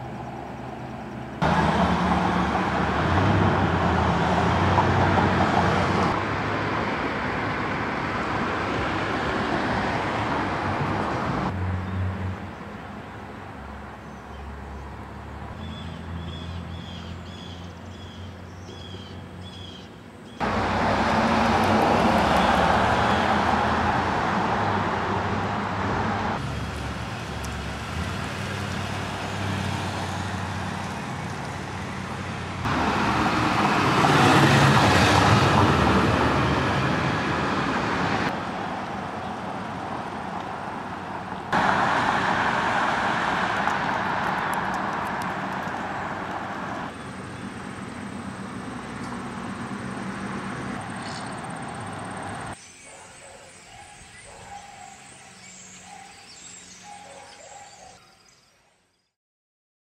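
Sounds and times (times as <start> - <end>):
street traffic: 0.0 - 58.2
car passing by: 0.8 - 12.5, 20.4 - 52.6.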